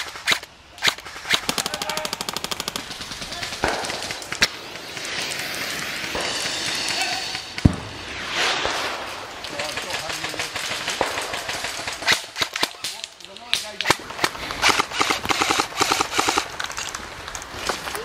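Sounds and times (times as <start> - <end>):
airsoft full-auto burst: 0.0 - 7.6, 13.9 - 16.5.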